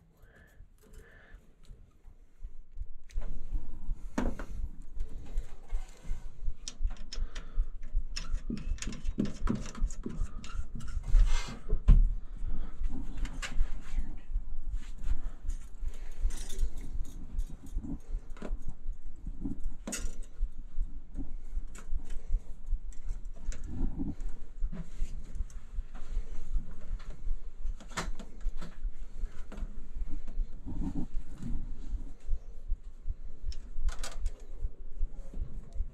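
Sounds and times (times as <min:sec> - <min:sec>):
light clicks and rustles: 0:04.1 - 0:12.0, 0:12.8 - 0:20.5, 0:33.5 - 0:34.6.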